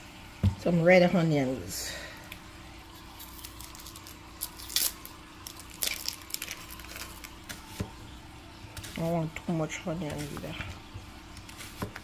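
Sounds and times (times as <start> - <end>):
low steady hum: 0.0 - 12.0
onion skin crackling and tearing: 2.9 - 7.8.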